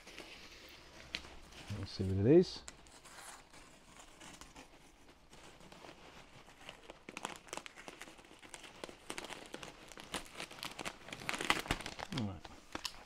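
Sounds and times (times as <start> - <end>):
paper crinkling and scratching: 0.0 - 13.0
packing peanuts shifting: 6.7 - 13.0.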